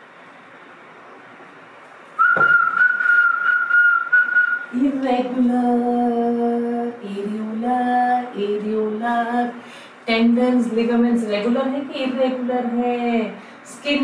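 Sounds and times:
long whistled note: 0:02.2 - 0:04.8
woman singing slow tune: 0:04.6 - 0:14.0.

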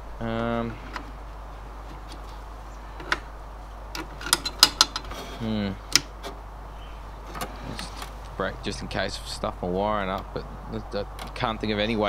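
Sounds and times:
person grunting: 0:05.4 - 0:05.8.

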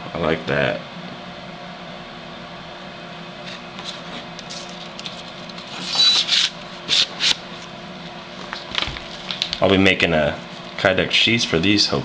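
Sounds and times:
machete scraping on sheath: 0:05.7 - 0:07.4.

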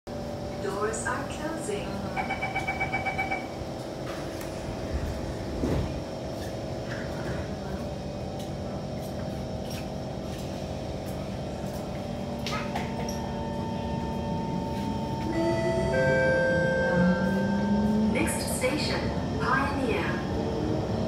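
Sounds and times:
train car humming: 0:00.1 - 0:21.0.

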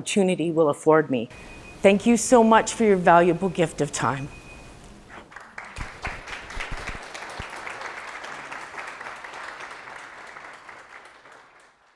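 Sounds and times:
audience applauding: 0:05.2 - 0:11.9.

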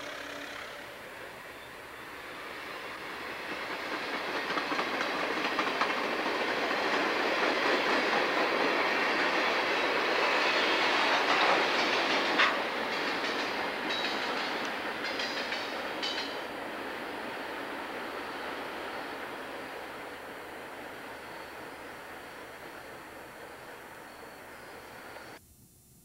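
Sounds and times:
train wheels clicking over rail joints: 0:03.3 - 0:20.0.

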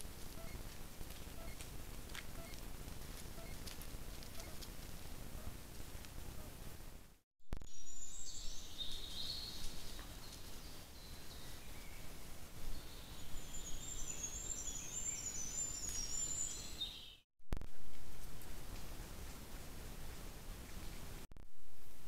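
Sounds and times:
songbirds singing: 0:07.7 - 0:17.2.

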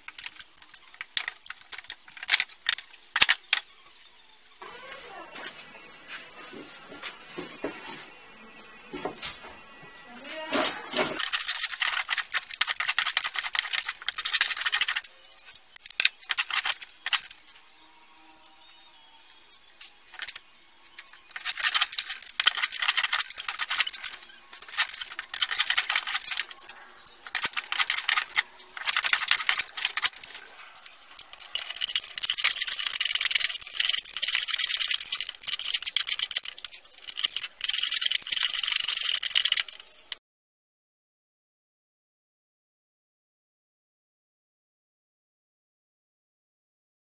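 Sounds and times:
scraping and rubbing on wood: 0:19.4 - 0:40.1.

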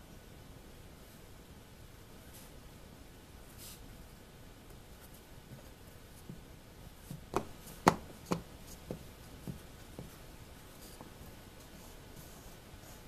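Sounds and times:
wooden block knocking on board: 0:07.3 - 0:09.0.

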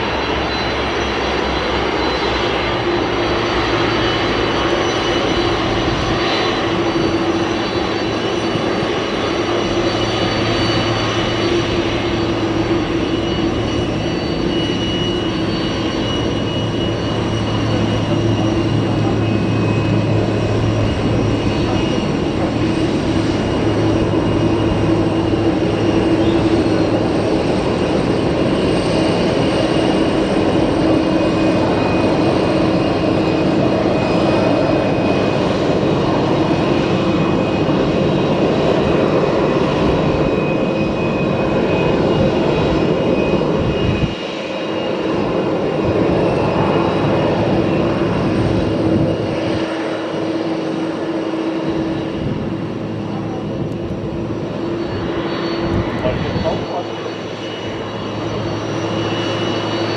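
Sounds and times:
jet engines whining: 0:00.0 - 0:59.9.

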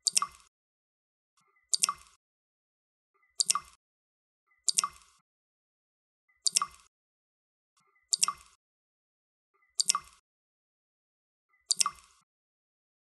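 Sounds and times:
water drops plopping: 0:00.0 - 0:00.5, 0:01.8 - 0:02.2, 0:06.5 - 0:06.9, 0:08.1 - 0:08.6, 0:11.7 - 0:12.1.

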